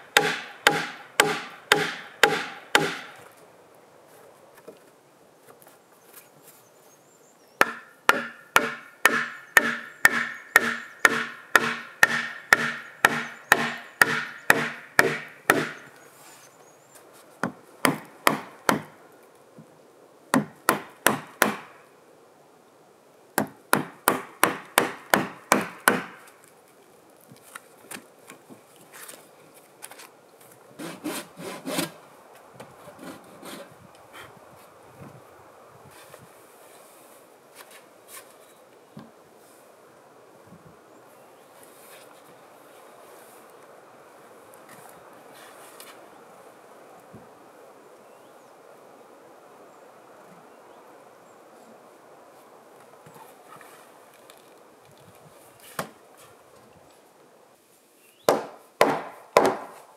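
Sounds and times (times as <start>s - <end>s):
hand tool striking wooden log: 0.2s - 3.2s, 7.6s - 15.8s, 23.4s - 26.2s.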